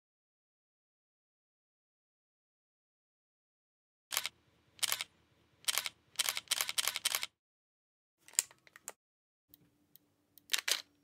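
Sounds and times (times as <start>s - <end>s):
camera shutter clicks: 4.1s - 5.1s, 5.7s - 7.3s.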